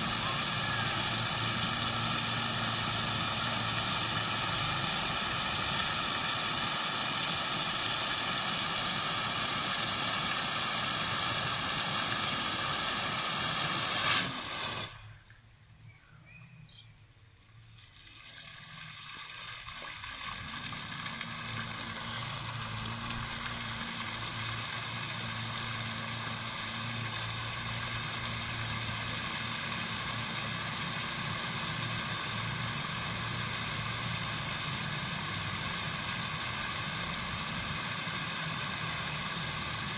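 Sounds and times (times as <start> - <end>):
fountain jets hissing and splashing: 0.0 - 15.1, 17.7 - 39.9
low hum: 19.5 - 31.4.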